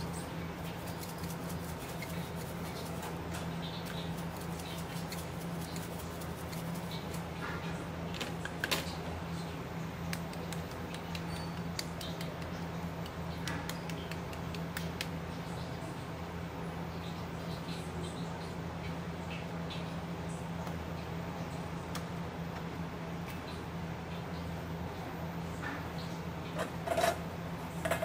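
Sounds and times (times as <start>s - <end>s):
steady low hum: 0.0s - 28.0s
shaker clicking and tapping: 0.6s - 7.4s, 10.1s - 15.3s.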